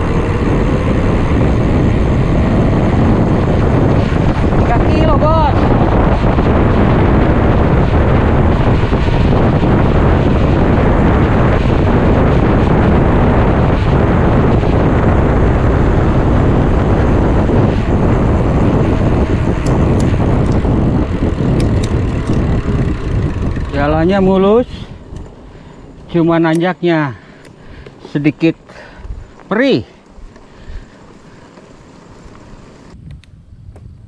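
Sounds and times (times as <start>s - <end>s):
wind buffeting microphone: 0.0s - 34.0s
sharp ticks: 18.6s - 25.4s, 26.0s - 28.3s.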